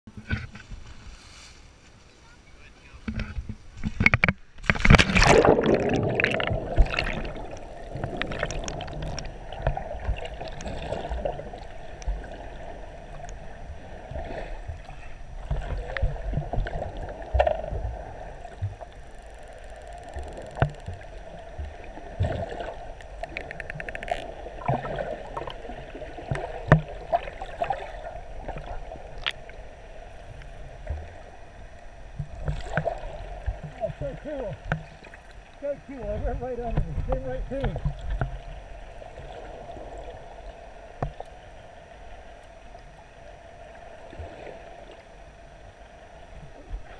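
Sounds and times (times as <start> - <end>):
underwater clicks: 3.1 - 11.1, 18.4 - 24.8
splash into water: 4.7 - 9.1
muffled underwater noise: 5.2 - 25.4, 30.0 - 38.1.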